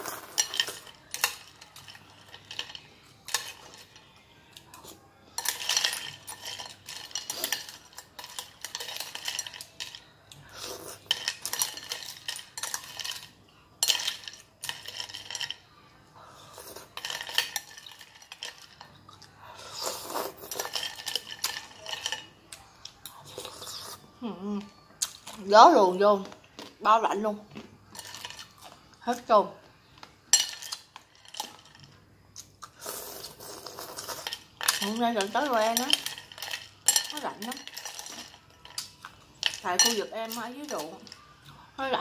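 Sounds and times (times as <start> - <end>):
spoon clinking on glass and ice: 0.0 - 15.7, 16.6 - 18.9, 20.4 - 22.3, 27.9 - 28.6, 30.3 - 32.0, 34.0 - 41.4
spoon scraping in glass bowl: 32.8 - 41.2.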